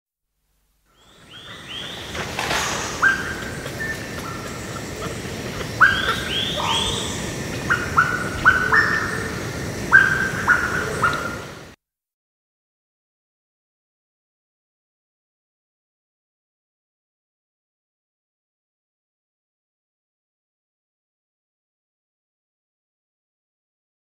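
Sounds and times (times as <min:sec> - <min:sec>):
cicadas buzzing: 0:00.9 - 0:11.8
monkeys giving shrill calls: 0:01.0 - 0:11.6.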